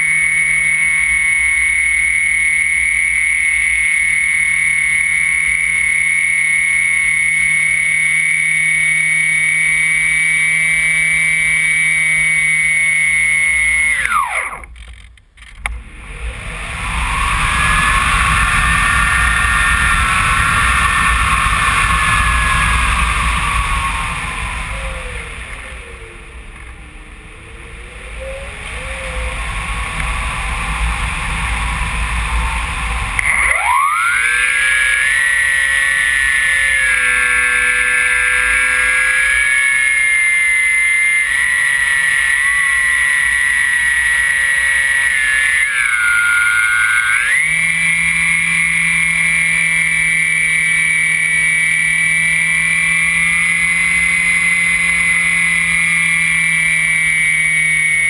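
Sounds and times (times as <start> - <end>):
electric motor and propeller whine: 0.0 - 58.0
air rushing past airframe: 15.8 - 33.2.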